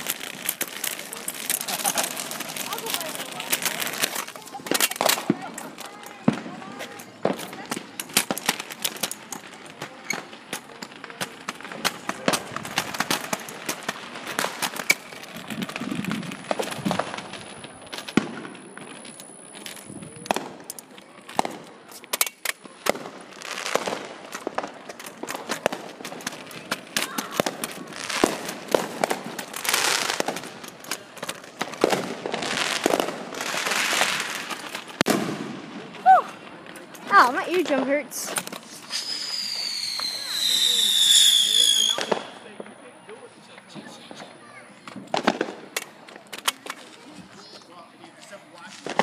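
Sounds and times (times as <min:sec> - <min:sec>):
firework pops and bangs: 0:00.0 - 0:42.8, 0:43.5 - 0:47.6, 0:48.6 - 0:49.0
firecrackers crackling: 0:00.0 - 0:49.0
high steady whistle: 0:38.9 - 0:42.1.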